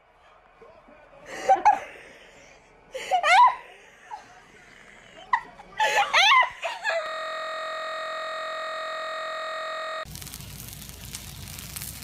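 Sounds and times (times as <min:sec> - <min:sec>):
steady electronic tone: 0:07.0 - 0:10.1
sausages sizzling in a pan: 0:10.1 - 0:12.0.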